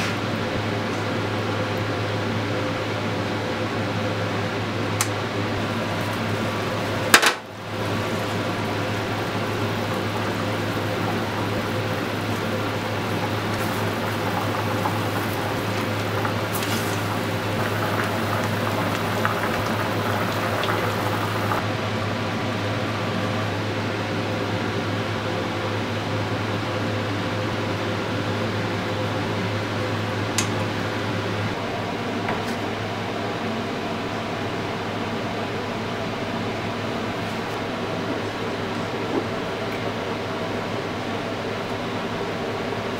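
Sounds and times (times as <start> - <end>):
liquid bubbling in a pot: 5.6 - 21.6.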